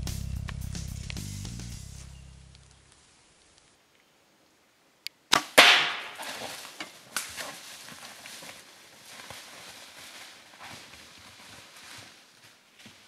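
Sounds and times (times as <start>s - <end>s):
arrow striking whack: 5.3s - 6.5s
bow release crack: 5.3s - 7.3s
twigs snapping: 5.3s - 8.6s
animal crashing through brush: 5.4s - 12.2s.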